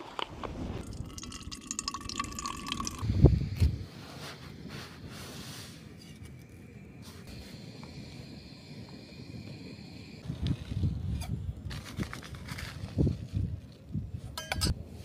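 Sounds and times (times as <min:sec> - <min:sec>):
water pouring into container: 0:00.8 - 0:03.0.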